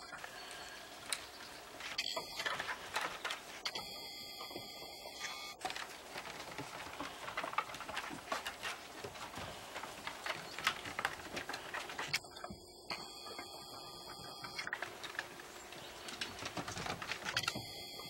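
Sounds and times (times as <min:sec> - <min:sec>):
puppy paws clicking on wooden deck: 0:00.0 - 0:18.0.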